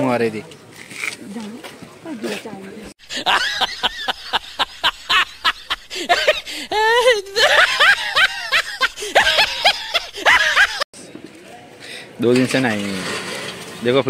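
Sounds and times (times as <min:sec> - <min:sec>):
hearty laughter: 0:03.0 - 0:10.8.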